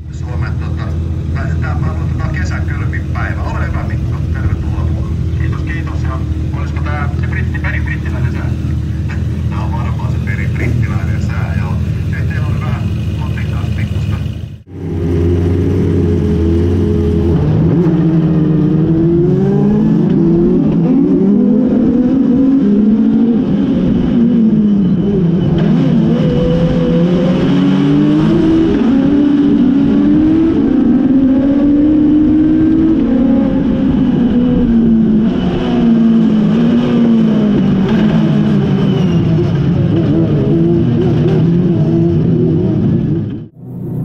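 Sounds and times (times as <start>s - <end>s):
race car engine revving: 0.0s - 44.0s.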